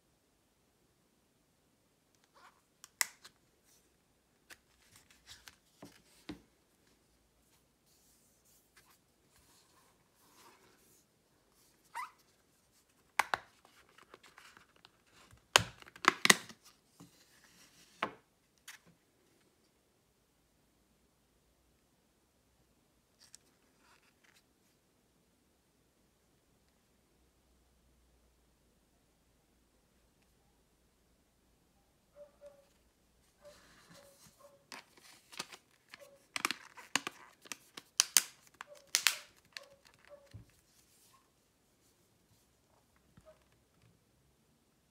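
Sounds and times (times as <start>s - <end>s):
plastic cover clips snapping: 35.4s - 40.0s.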